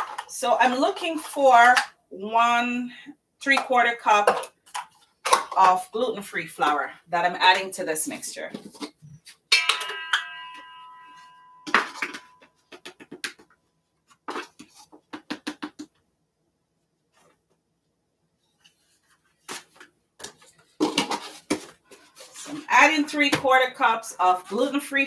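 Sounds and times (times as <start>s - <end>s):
bright ding: 9.5s - 12.5s.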